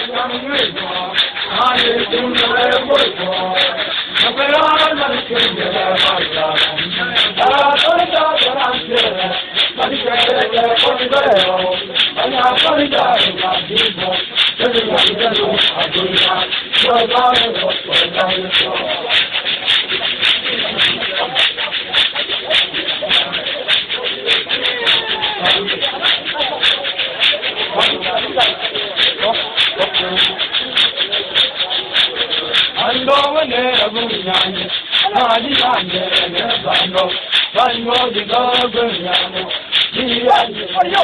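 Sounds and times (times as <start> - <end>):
crowd singing and chanting: 0.0 - 41.0
sharp percussive hits: 0.0 - 41.0
sharp rhythmic strikes: 0.0 - 41.0.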